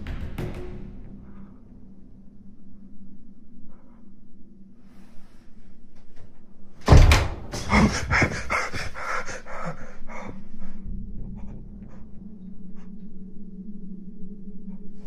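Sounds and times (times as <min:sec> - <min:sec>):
steady low hum: 0:00.0 - 0:15.0
rapid rhythmic panting: 0:07.6 - 0:13.4.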